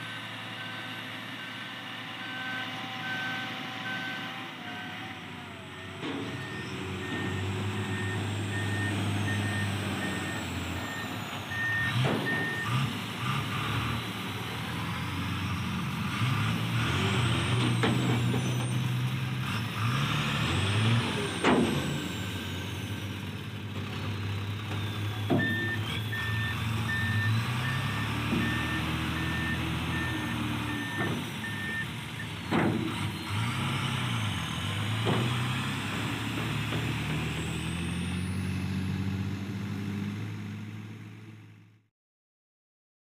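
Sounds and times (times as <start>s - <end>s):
diesel truck engine running: 0.0s - 41.7s
reversing alarm beeping: 5.8s - 12.8s, 24.9s - 32.3s.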